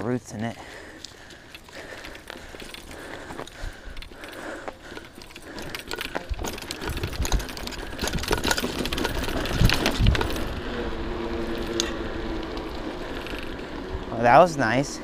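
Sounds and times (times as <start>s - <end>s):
bicycle rattling on dirt trail: 0.0s - 15.0s.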